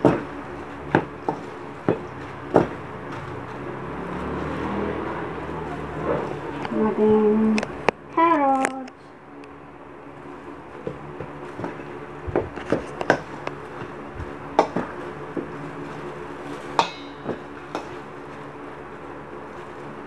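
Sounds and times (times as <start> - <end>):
meat mixture squelching: 0.0 - 6.4
utensil clinking on steel bowl: 16.8 - 18.0.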